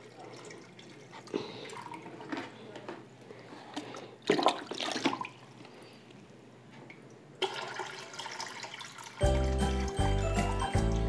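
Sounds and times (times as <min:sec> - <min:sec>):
water pouring into aquarium: 0:00.0 - 0:02.2, 0:07.4 - 0:11.0.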